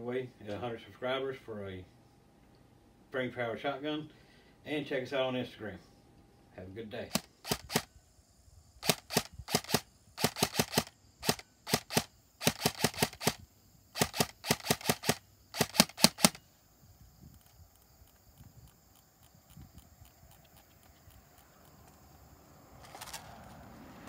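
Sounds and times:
airsoft gun shots: 7.1 - 7.9, 8.8 - 13.4, 14.0 - 16.4.

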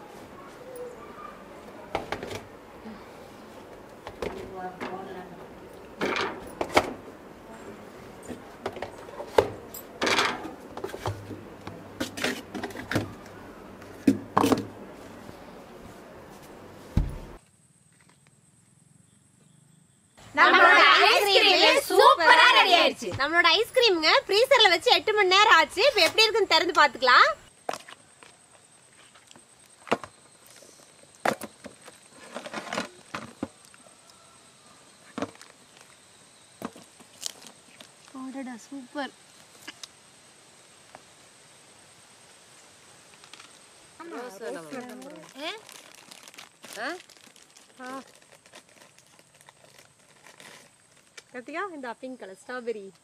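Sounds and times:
plastic tubs knocking and scraping: 8.2 - 13.2, 13.8 - 14.9, 31.2 - 33.6.

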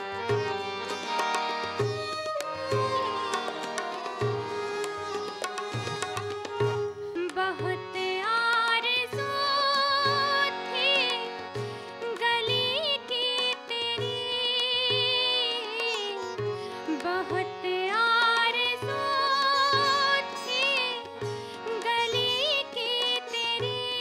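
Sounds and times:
ornamented melody line: 0.0 - 16.2
harmonium: 0.0 - 24.0
plucked sitar: 0.0 - 24.0
tabla beat: 0.0 - 24.0.

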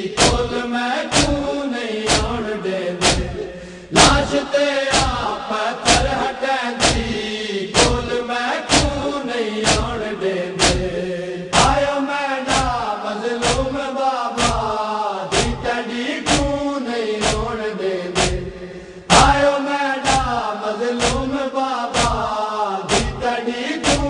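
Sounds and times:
men chanting in unison: 0.0 - 24.0
chest-beating thumps: 2.1 - 2.4, 3.0 - 5.3, 6.8 - 7.2, 7.8 - 10.0, 10.6 - 11.0, 15.3 - 15.7, 17.2 - 17.6, 18.2 - 19.4, 22.9 - 23.2.

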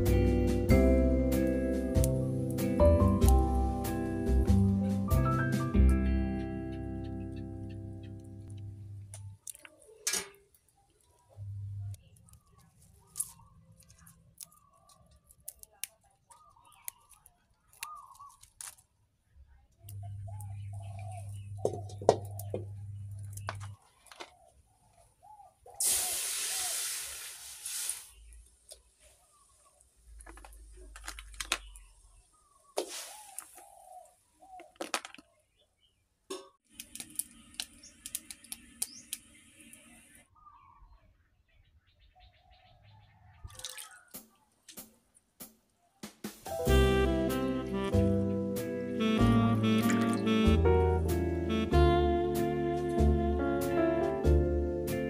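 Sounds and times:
stems snapping by hand: 1.4 - 3.4, 8.4 - 11.2, 11.9 - 19.0, 19.8 - 24.3, 36.3 - 39.8, 44.1 - 45.7
bird calls: 6.1 - 18.8, 19.8 - 26.9, 28.1 - 36.6, 37.2 - 44.7
plastic container clicking: 34.6 - 35.3
contents pouring: 49.7 - 50.3.

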